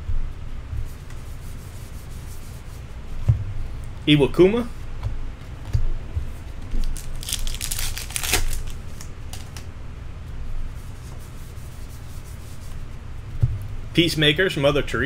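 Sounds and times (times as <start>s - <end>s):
cards being handled: 5.0s - 9.7s
card pack wrapper crinkling and tearing: 6.7s - 9.7s.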